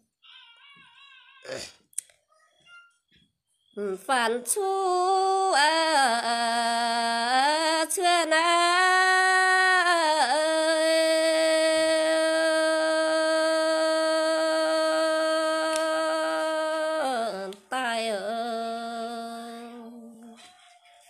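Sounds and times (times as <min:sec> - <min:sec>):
person singing long held notes: 0:03.8 - 0:20.4.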